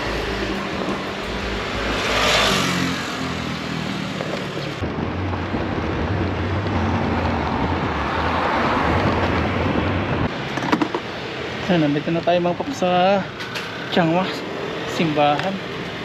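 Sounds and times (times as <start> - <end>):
wind rushing over microphone: 0.0 - 11.6
road and traffic noise: 0.0 - 16.0.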